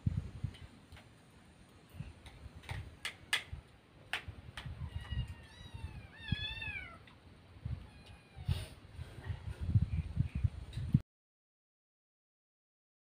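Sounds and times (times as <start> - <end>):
kitten meowing: 4.8 - 7.0.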